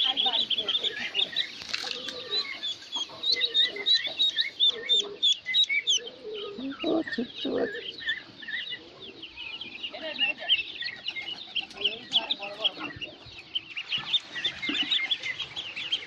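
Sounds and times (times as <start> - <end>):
ducklings peeping: 0.0 - 16.0
lower calls: 0.0 - 16.0.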